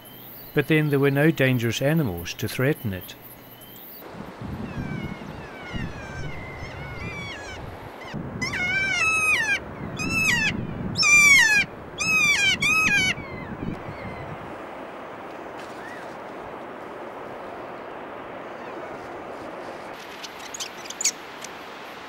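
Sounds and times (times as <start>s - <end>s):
parrot shrill screeching calls: 4.8s - 14.2s.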